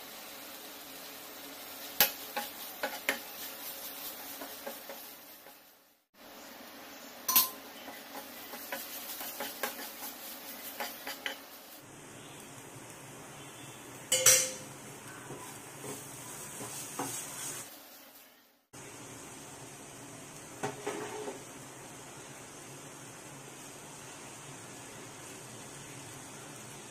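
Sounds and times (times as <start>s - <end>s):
utensils scraping frying pan: 1.9s - 5.7s, 7.8s - 11.8s, 15.3s - 17.8s, 20.7s - 21.4s.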